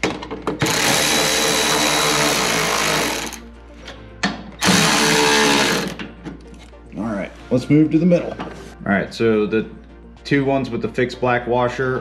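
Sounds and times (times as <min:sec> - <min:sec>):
cordless electric ratchet running: 0:00.6 - 0:03.4, 0:04.6 - 0:06.0.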